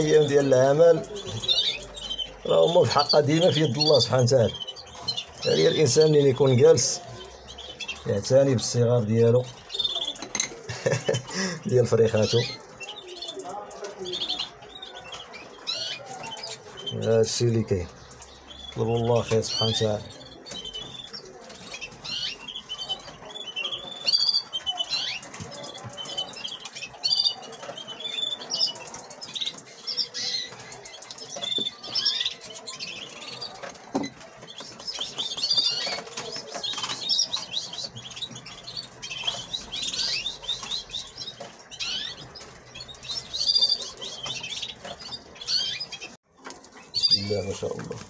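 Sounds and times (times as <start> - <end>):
canaries chirping: 0.0 - 48.0.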